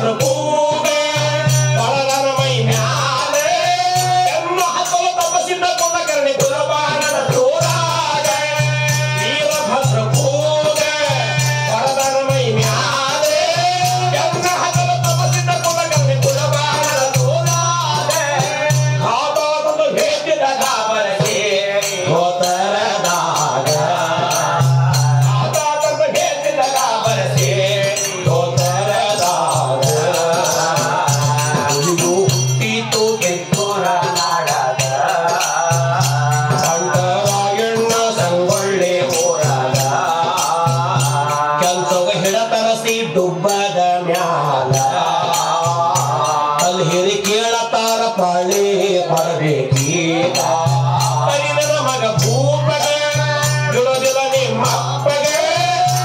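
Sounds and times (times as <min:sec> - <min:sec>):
men singing folk ballad: 0:00.0 - 0:56.0
small hand cymbals: 0:00.0 - 0:56.0.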